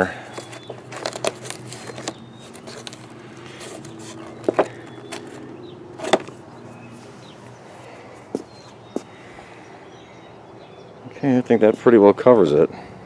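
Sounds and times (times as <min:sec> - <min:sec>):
canvas rustling: 0:00.2 - 0:07.4.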